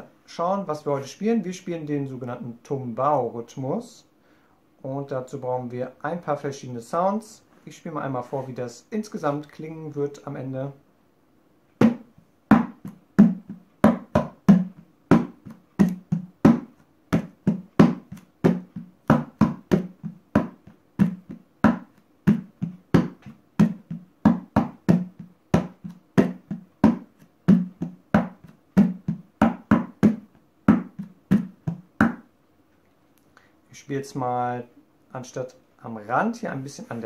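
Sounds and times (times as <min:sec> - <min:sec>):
hand drumming on plastic trash can: 0:11.8 - 0:32.2.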